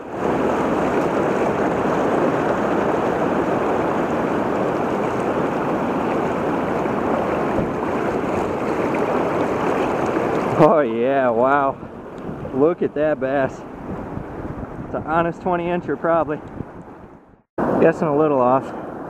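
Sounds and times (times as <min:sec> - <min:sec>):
river rushing over rapids: 0:00.0 - 0:12.1.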